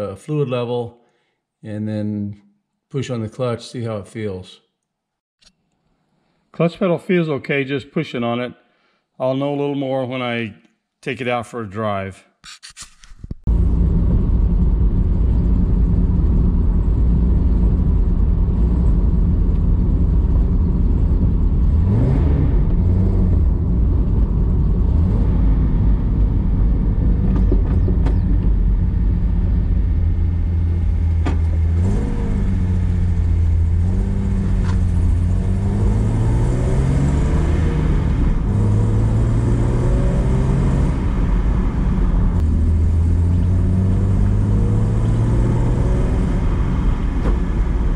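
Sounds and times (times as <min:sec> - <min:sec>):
car engine accelerating: 0:13.5 - 0:47.9.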